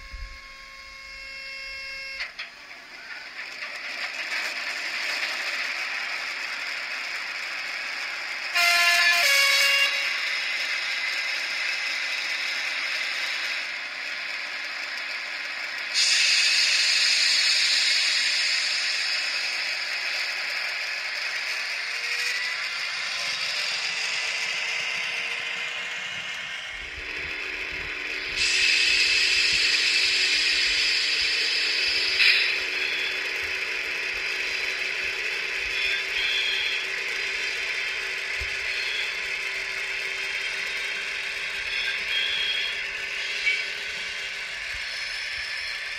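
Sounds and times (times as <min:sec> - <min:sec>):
model train diesel engine sound: 0:00.0 - 0:45.9
motor and gears whirring: 0:00.0 - 0:45.9.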